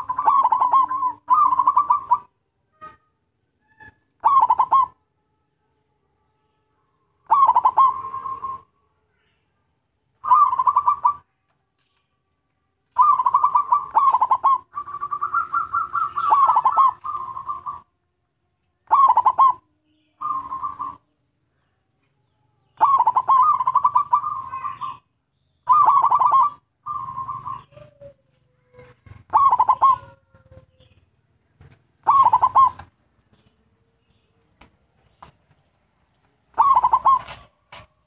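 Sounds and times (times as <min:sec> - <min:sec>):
dove cooing: 0:00.0 - 0:03.0, 0:03.8 - 0:05.0, 0:07.2 - 0:08.7, 0:10.2 - 0:11.3, 0:13.0 - 0:17.9, 0:18.8 - 0:19.6, 0:20.2 - 0:21.1, 0:22.6 - 0:25.0, 0:25.7 - 0:34.3, 0:36.5 - 0:38.0.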